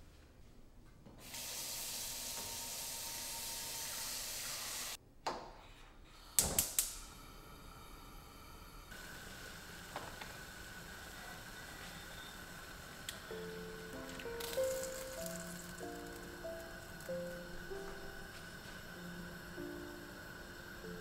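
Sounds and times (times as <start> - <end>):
faint steady gas hiss: 0.0 - 21.0
tap water running into a pot: 1.2 - 5.0, 8.9 - 21.0
gas range igniter clicks: 6.4 - 7.1.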